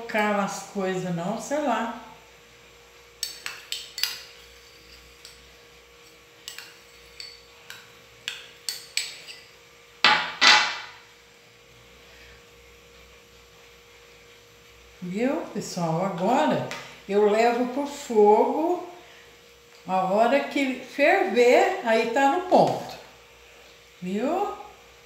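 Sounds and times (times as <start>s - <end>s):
metal spoon scraping glass cup: 3.2s - 5.4s.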